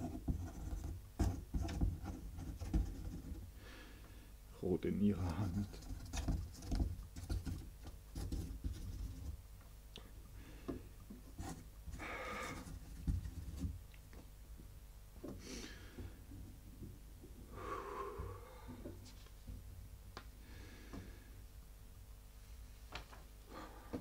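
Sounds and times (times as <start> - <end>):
quill pen scratching on paper: 0.0 - 3.4, 5.4 - 9.4
soft breaths: 11.9 - 12.8, 17.2 - 19.4, 20.4 - 21.5, 22.4 - 24.0.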